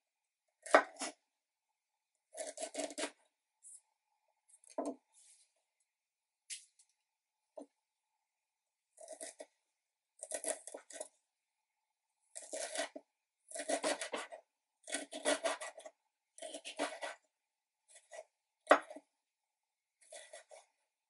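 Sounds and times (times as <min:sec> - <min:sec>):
knife chopping on wooden board: 0:00.6 - 0:01.1, 0:02.4 - 0:03.2, 0:12.4 - 0:17.2, 0:18.0 - 0:19.0.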